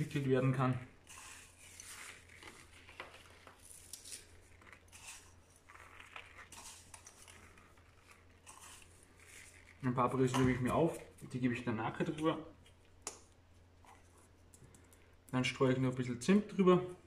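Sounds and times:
breadcrumbs pattering on dough: 0.0s - 11.4s.

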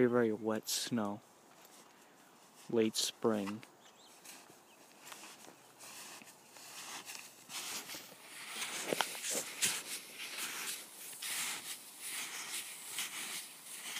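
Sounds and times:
ski shoes crunching through wet snow: 3.4s - 13.9s.

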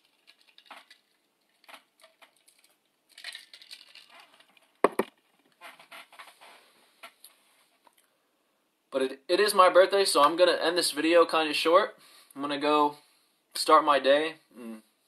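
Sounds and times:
plastic cup crinkling: 0.0s - 5.3s
cup knocking on hard surface: 4.8s - 5.1s.

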